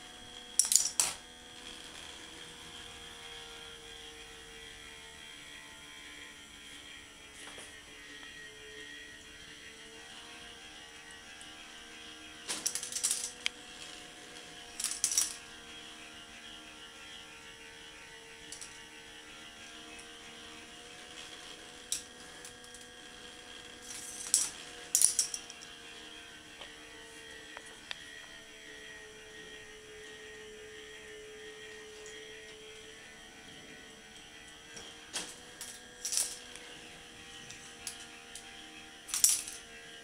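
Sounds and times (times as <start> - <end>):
electric motor hum: 0.0 - 40.0
balls clattering through plastic track: 0.6 - 1.2, 12.5 - 13.6, 14.7 - 15.4, 23.8 - 25.6, 35.2 - 36.5, 39.1 - 39.6.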